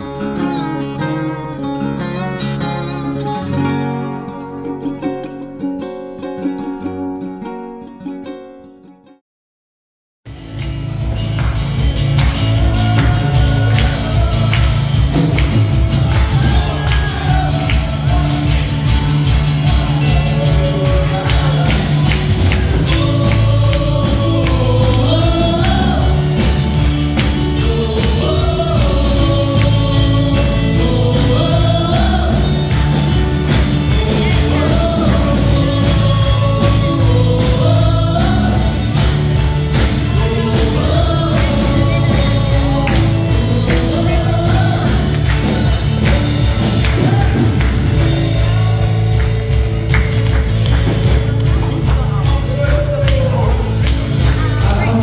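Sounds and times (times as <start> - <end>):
acoustic guitar and keyboard band: 0.0 - 9.2, 10.3 - 55.0
women singing gospel: 12.6 - 15.3, 16.0 - 18.4, 19.9 - 26.6, 27.5 - 32.8, 33.6 - 39.0, 40.0 - 47.5.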